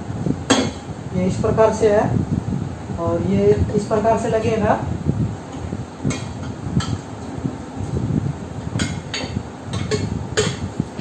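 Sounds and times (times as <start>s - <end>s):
low rubbing handling noise: 5.0s - 11.0s
metal and glass shade clinking: 5.5s - 7.4s, 8.6s - 11.0s.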